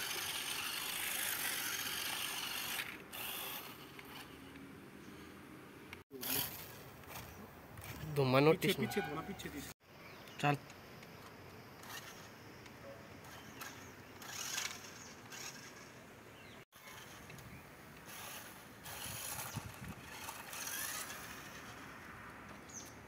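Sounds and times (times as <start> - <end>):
toy car electric motors whirring: 0.0 - 4.6, 6.1 - 8.0, 11.2 - 12.4, 13.2 - 16.0, 16.6 - 23.0.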